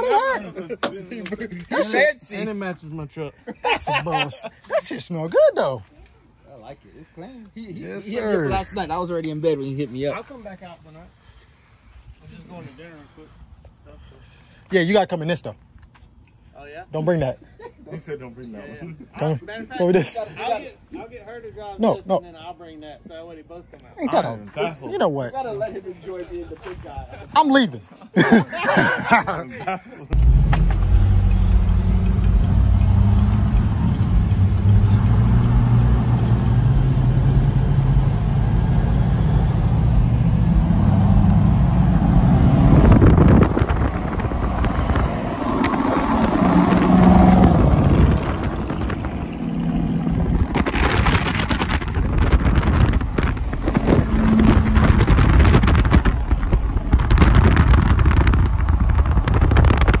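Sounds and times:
road noise: 0.0s - 17.4s, 30.1s - 60.0s
truck engine: 30.1s - 60.0s
wind gusts on microphone: 30.2s - 60.0s.

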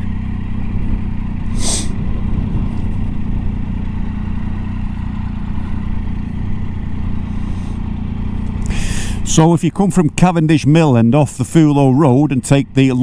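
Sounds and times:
motorcycle engine running: 0.0s - 13.0s
brief hiss: 1.5s - 2.0s.

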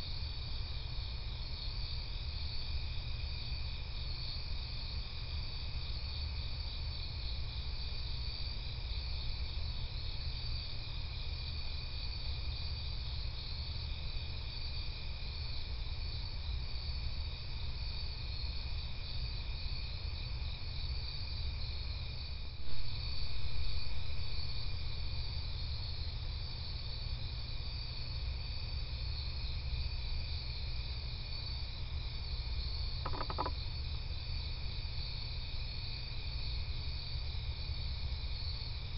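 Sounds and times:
crickets trilling: 0.0s - 38.9s
low steady hum: 21.4s - 36.0s
brief knock: 33.0s - 33.6s.

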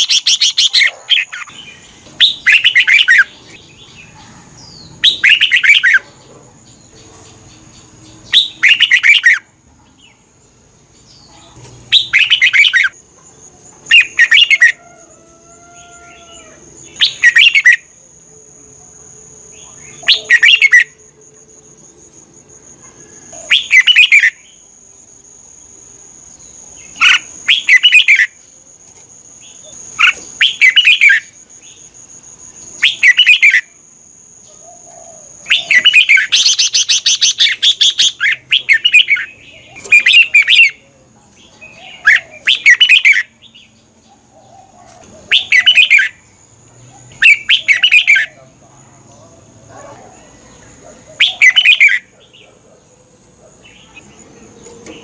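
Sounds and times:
bulbul singing: 0.0s - 10.3s, 10.9s - 15.0s, 15.6s - 24.7s, 25.3s - 48.5s, 49.1s - 52.7s.

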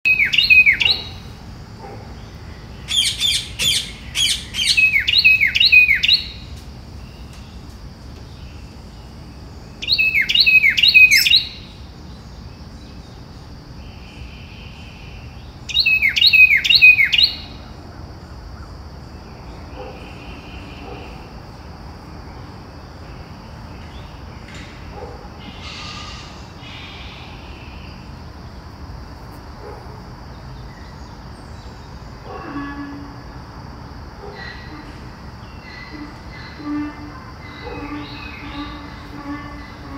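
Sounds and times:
parakeets squawking: 2.9s - 6.0s
steady hiss: 22.6s - 29.6s.

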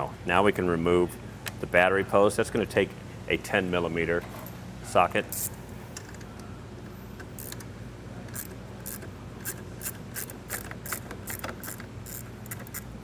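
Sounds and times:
hand ratchet clicking: 7.2s - 7.7s, 8.3s - 12.9s.

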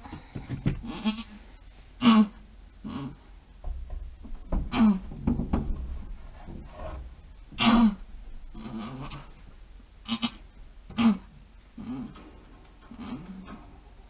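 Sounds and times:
goat bleating: 10.0s - 10.4s.

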